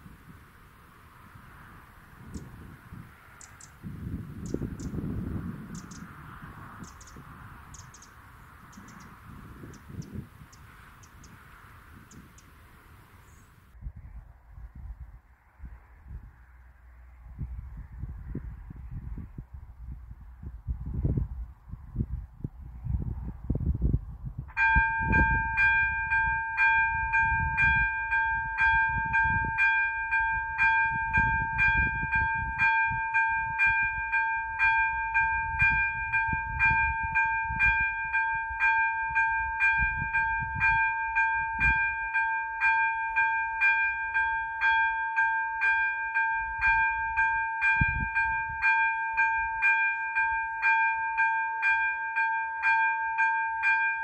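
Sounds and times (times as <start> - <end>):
level crossing warning bell: 24.5 - 54.0.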